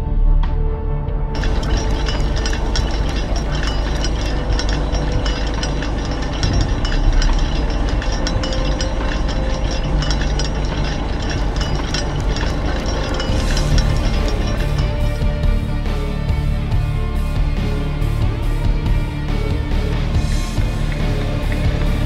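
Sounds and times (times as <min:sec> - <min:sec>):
metallic clanks and knocks: 0:01.4 - 0:15.6
heavy machinery rumbling: 0:01.4 - 0:16.0.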